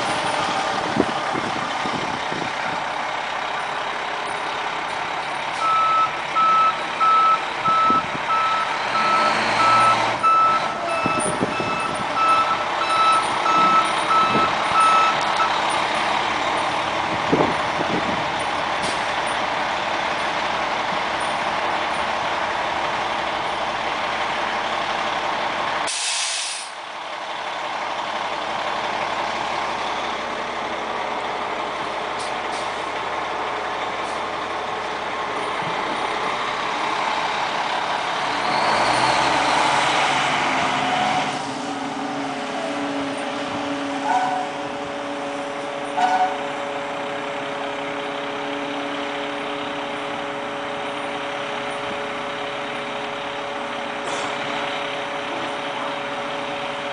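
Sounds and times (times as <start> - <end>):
diesel engine running: 0.0 - 56.9
reverse alarm beeping: 5.6 - 15.6
short burst of hiss: 25.9 - 26.8.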